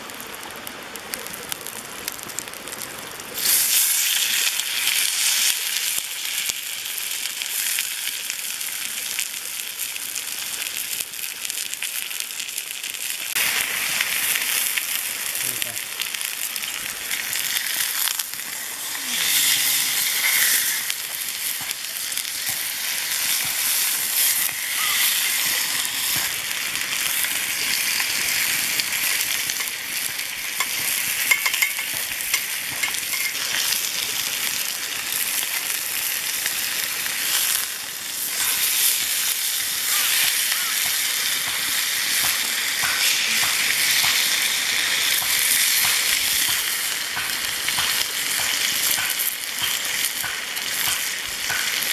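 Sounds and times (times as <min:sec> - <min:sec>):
steak sizzling in a frying pan: 0:00.0 - 0:51.9
metal tongs scraping a pan: 0:18.8 - 0:20.9, 0:30.5 - 0:33.7.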